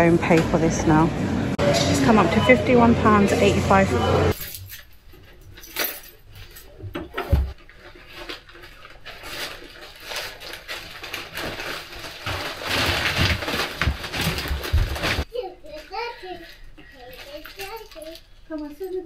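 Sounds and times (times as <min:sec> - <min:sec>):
shopping bags rustling: 0:04.2 - 0:15.3.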